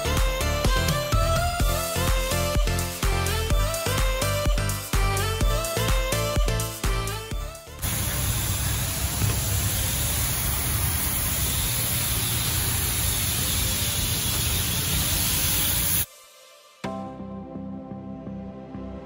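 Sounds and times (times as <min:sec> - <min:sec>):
pressure washer spraying water: 0:07.8 - 0:16.1.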